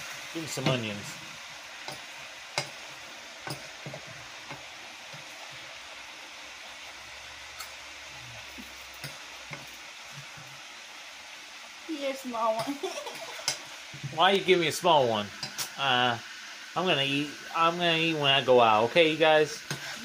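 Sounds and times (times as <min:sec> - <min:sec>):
sizzling hiss: 0:00.0 - 0:20.0
spoon clinking and scraping pot: 0:19.6 - 0:20.0.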